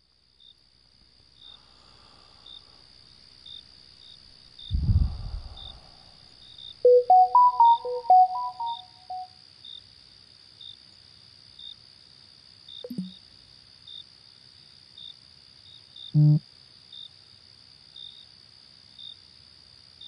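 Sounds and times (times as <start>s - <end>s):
crickets chirping: 0.4s - 9.8s
electronic melody: 6.9s - 9.2s, 12.9s - 13.1s.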